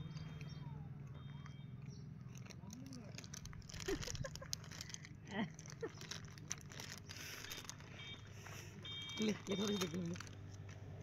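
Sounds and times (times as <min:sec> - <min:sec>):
plastic packet crinkling and tearing: 0:02.3 - 0:08.3, 0:08.9 - 0:11.0
person laughing: 0:03.7 - 0:04.7.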